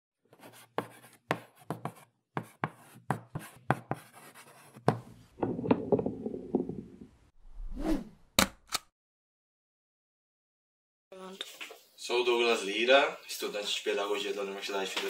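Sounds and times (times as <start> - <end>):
pen scratching on paper: 0.3 - 5.0.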